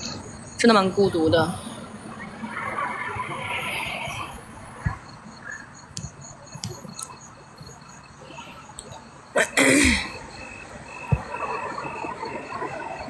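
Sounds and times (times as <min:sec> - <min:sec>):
crickets chirping: 0:00.0 - 0:13.0
woman sneezing: 0:09.4 - 0:10.2.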